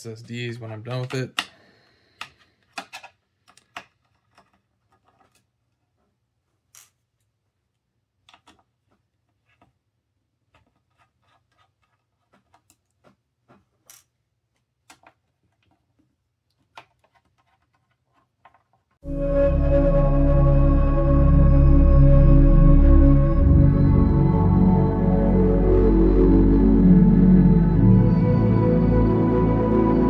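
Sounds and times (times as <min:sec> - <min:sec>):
fingers handling small screws: 0:02.2 - 0:05.8, 0:10.5 - 0:15.9, 0:16.5 - 0:19.0.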